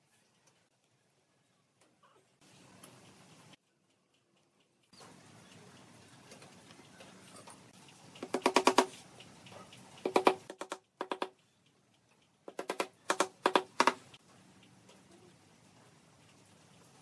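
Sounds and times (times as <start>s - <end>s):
wooden mallet tapping nails: 8.2s - 9.0s, 10.0s - 11.4s, 12.5s - 14.1s.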